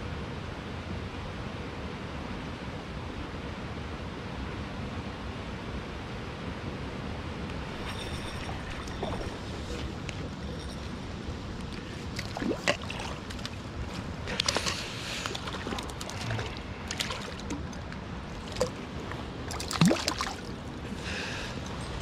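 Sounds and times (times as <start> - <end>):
flowing water rushing: 7.6 - 22.0.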